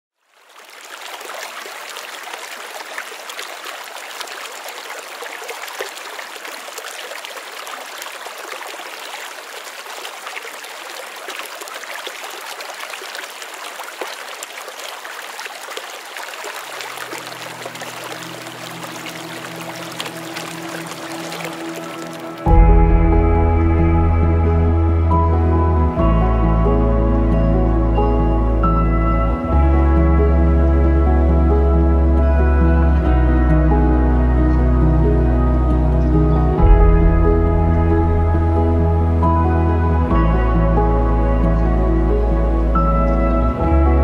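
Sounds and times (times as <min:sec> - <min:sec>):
river water flowing: 0:00.2 - 0:44.0
low sustained music notes: 0:17.2 - 0:44.0.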